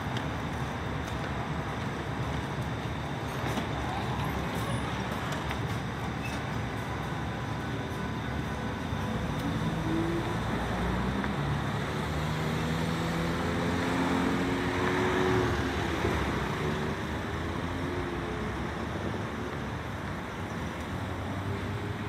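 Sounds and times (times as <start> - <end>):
road noise: 0.0 - 22.0
tram motors whining: 0.1 - 22.0
cars passing: 8.8 - 22.0.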